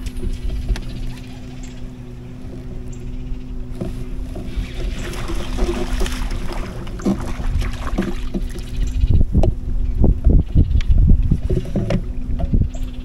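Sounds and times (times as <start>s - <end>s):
water sloshing: 0.0s - 9.1s
steady low hum: 0.0s - 13.0s
wind rumble on microphone: 0.0s - 13.0s
light knocks against hull: 3.7s - 8.8s.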